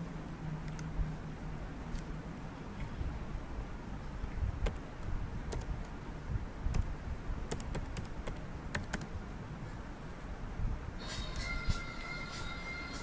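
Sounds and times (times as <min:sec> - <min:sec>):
keyboard typing clicks: 0:05.5 - 0:06.0, 0:07.5 - 0:09.1.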